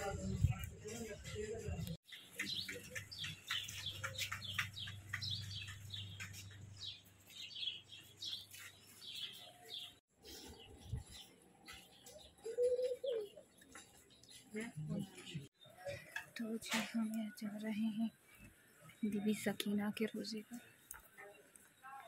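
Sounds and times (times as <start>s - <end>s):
small birds chirping: 0.3s - 22.0s.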